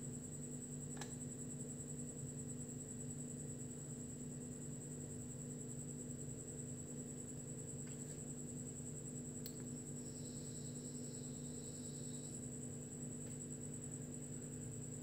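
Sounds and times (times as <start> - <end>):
low electrical hum: 0.0 - 15.0
faint high whine: 5.8 - 15.0.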